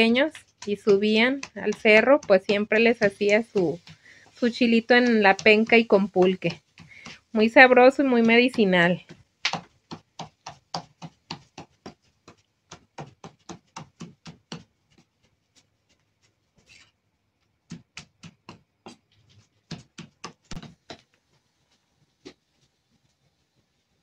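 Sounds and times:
knife chopping chiles: 0:00.0 - 0:15.0.

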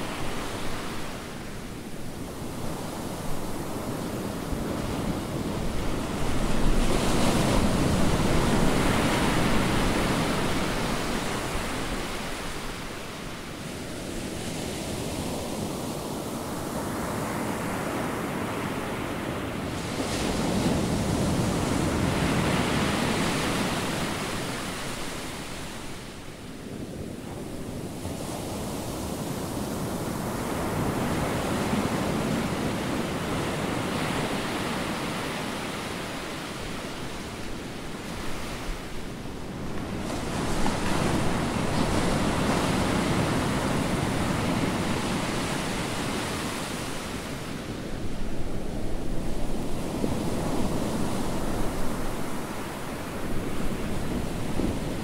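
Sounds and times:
ocean waves breaking: 0:27.9 - 0:55.0.

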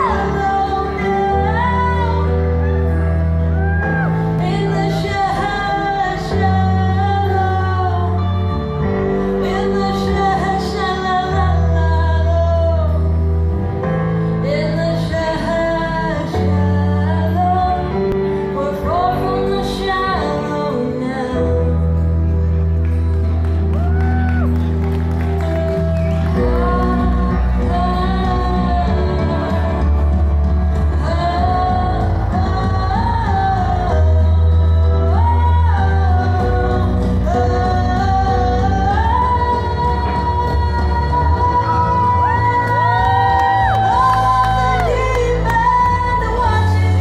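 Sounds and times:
woman singing into a microphone: 0:00.0 - 0:22.6, 0:26.1 - 0:47.0
instrumental backing music: 0:00.0 - 0:47.0.

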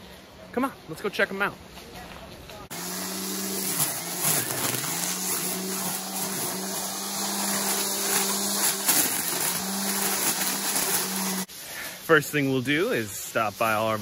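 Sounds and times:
string trimmer running: 0:02.7 - 0:11.5.

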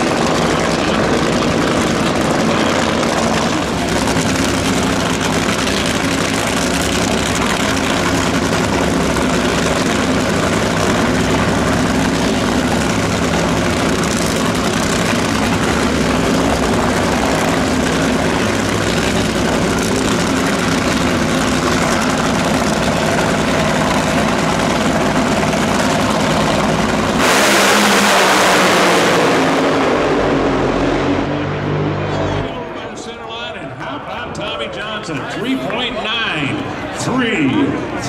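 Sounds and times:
dragster engine idling: 0:00.0 - 0:27.2
engine revving at full throttle: 0:00.0 - 0:32.5.

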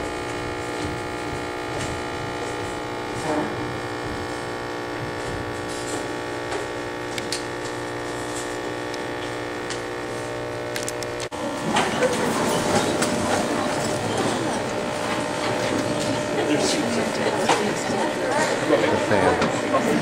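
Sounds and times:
electrical hum and buzz: 0:00.0 - 0:20.0.

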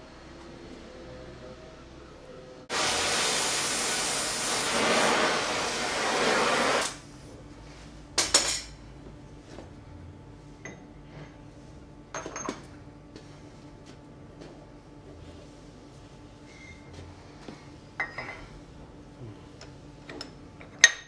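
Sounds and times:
rushing hiss of air jet: 0:02.7 - 0:07.0.

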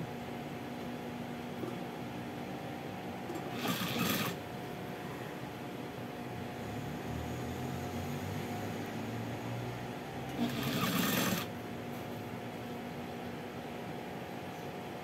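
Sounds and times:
sewing machine motor humming: 0:03.3 - 0:04.4, 0:10.3 - 0:11.5
sewing machine stitching: 0:03.3 - 0:04.4, 0:10.3 - 0:11.5.

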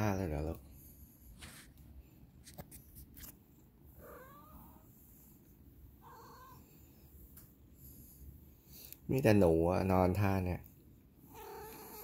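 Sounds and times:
soft cat vocal sounds: 0:02.7 - 0:08.9, 0:10.9 - 0:12.0
cat purring faintly: 0:03.4 - 0:12.0.

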